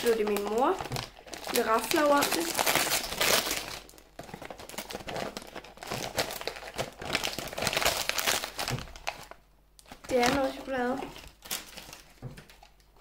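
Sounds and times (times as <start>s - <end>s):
gift wrapping crinkling: 0.0s - 13.0s.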